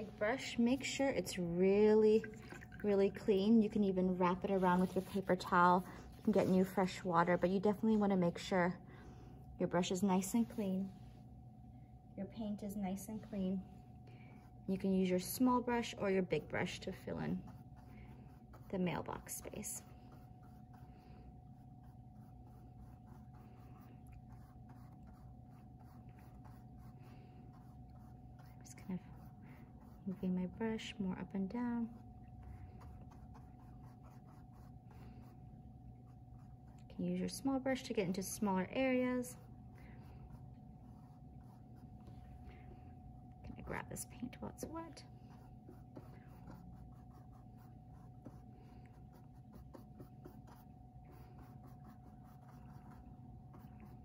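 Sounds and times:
steady low hum: 0.0s - 54.0s
paintbrush strokes on canvas: 3.4s - 7.6s, 14.4s - 42.4s, 43.8s - 54.0s.

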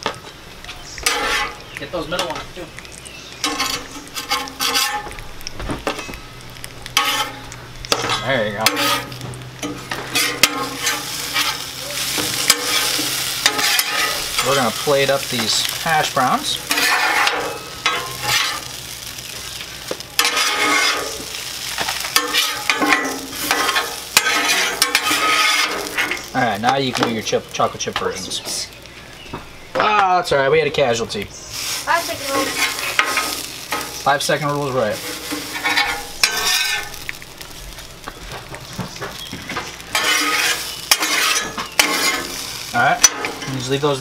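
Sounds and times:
food sizzling: 0.0s - 44.0s
metal spatulas scraping griddle: 1.0s - 1.6s, 3.4s - 5.2s, 7.0s - 15.7s, 16.4s - 18.8s, 20.2s - 26.3s, 31.6s - 37.0s, 39.6s - 43.8s.

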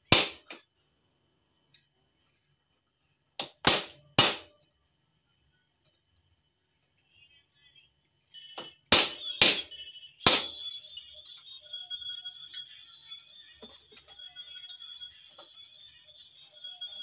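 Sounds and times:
high metallic ring: 10.4s - 12.9s.

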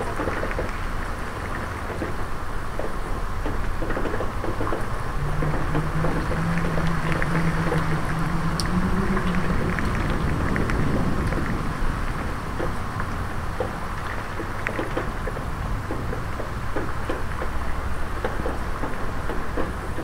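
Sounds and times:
rain pattering into a puddle: 0.0s - 20.0s
wind: 0.0s - 20.0s
low hum: 4.8s - 14.3s.

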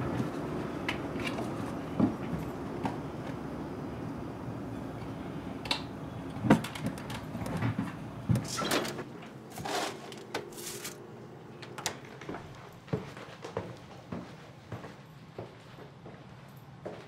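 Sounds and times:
low room hum: 0.0s - 17.0s
chair shifting: 6.4s - 11.0s
rustling scrapes: 9.5s - 11.0s.

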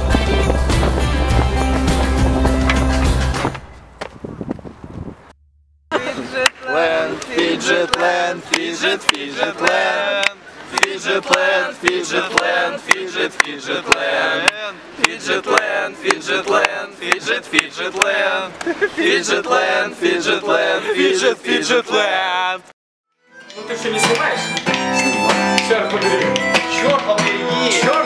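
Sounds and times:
group of people singing: 6.0s - 22.3s.

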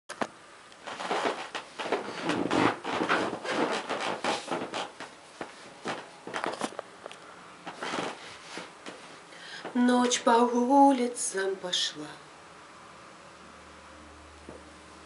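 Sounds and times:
rustling and scraping: 0.1s - 10.2s.

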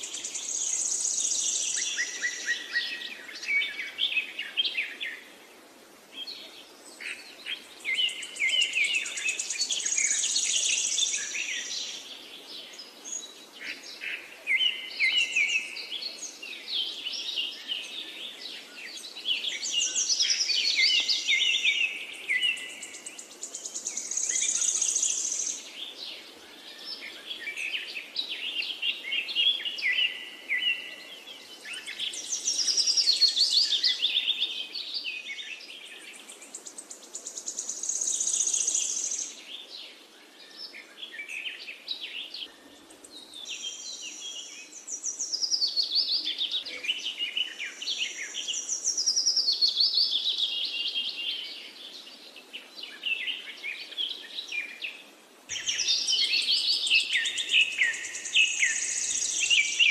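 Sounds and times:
sparrows chirping: 55.5s - 59.9s.

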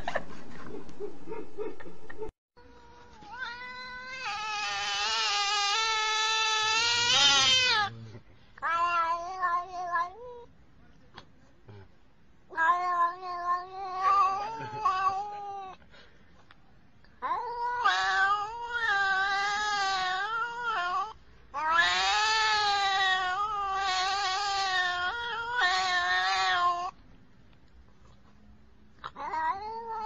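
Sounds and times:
cat yowling: 2.7s - 8.0s, 8.6s - 10.5s, 12.5s - 15.8s, 17.2s - 27.0s, 29.0s - 30.0s.

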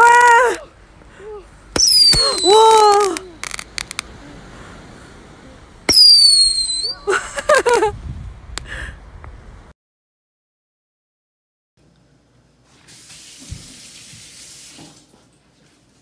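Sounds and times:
excited voices squealing: 1.8s - 3.6s, 5.9s - 7.1s
firework launch pop and whistle: 1.8s - 3.6s, 5.9s - 7.0s
firework crackling pops: 1.8s - 4.1s, 5.9s - 7.0s.

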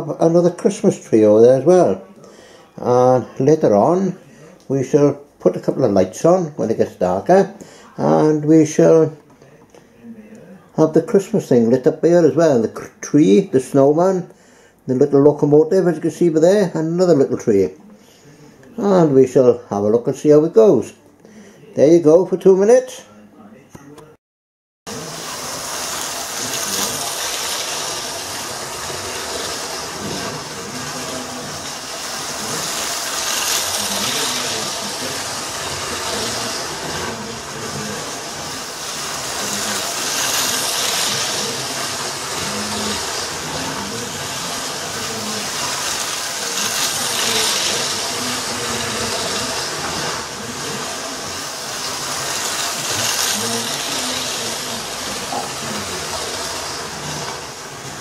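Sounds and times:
model train rolling on track: 0.0s - 2.1s, 24.9s - 58.0s.

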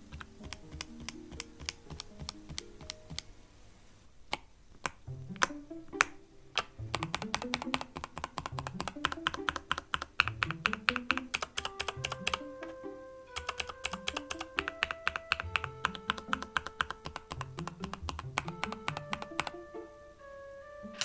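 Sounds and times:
mechanical keyboard typing: 0.1s - 3.3s, 6.6s - 12.4s, 13.3s - 19.6s.

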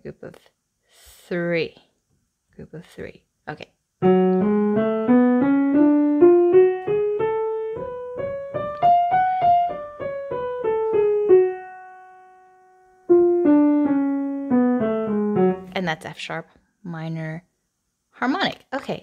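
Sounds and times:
piano playing a scale: 4.0s - 15.8s.

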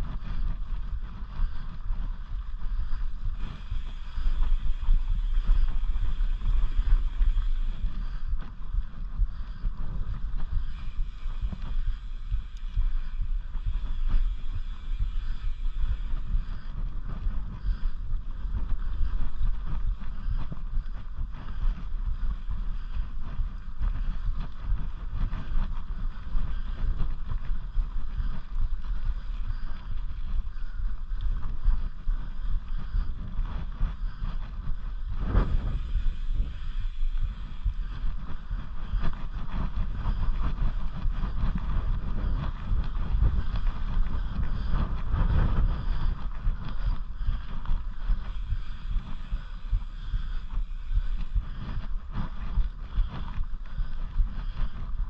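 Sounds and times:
bike clicks and rattles: 0.0s - 55.0s
tyres rumbling over dirt trail: 0.0s - 55.0s
wind buffeting microphone: 0.0s - 55.0s.

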